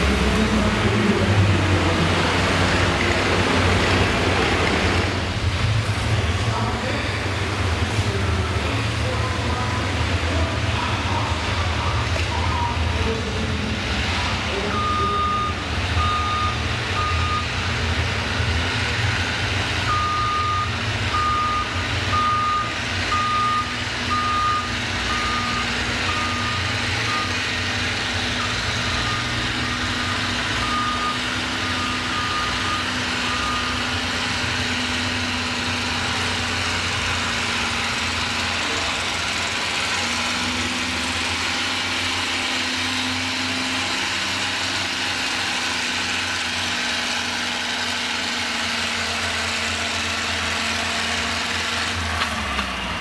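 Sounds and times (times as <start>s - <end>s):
low engine drone: 0.0s - 46.8s
backup alarm beeping: 14.6s - 17.5s, 19.9s - 27.5s, 28.4s - 33.9s.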